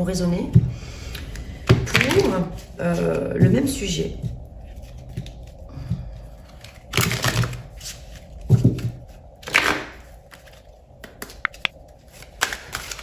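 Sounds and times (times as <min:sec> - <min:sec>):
cards shuffling swishes: 0:11.2 - 0:11.7.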